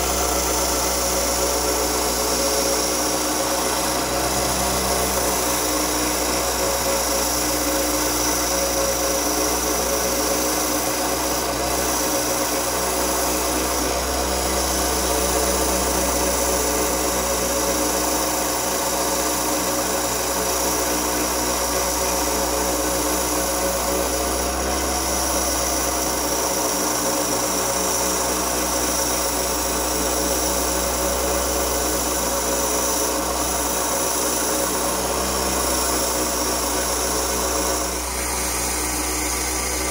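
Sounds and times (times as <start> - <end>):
wet band saw grinding glass: 0.0 - 39.9.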